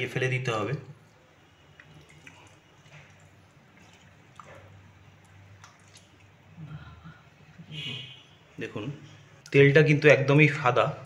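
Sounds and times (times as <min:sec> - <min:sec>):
soft water drips: 0:00.6 - 0:08.2
wet squishing of fish fat: 0:01.7 - 0:06.6.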